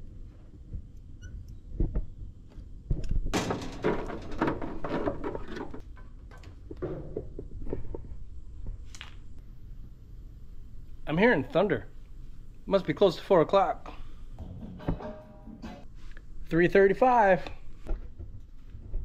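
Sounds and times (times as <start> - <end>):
parts clattering and rattling: 2.9 - 8.2.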